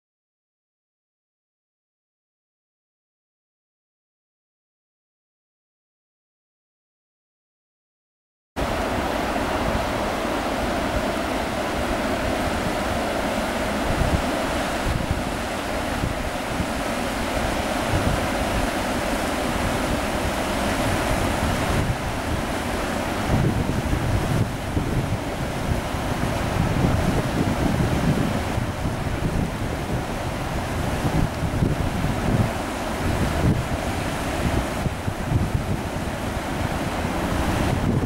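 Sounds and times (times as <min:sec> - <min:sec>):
floodwater rushing: 0:08.6 - 0:38.0
wind buffeting microphone: 0:08.6 - 0:38.0.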